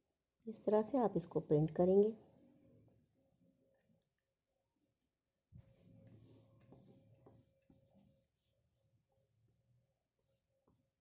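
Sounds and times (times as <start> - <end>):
scratchy paintbrush strokes: 5.6 - 11.0.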